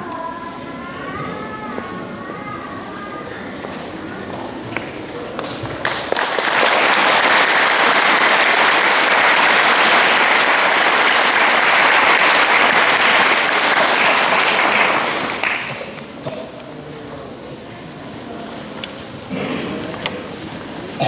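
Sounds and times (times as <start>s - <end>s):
audience applauding: 5.8s - 16.2s.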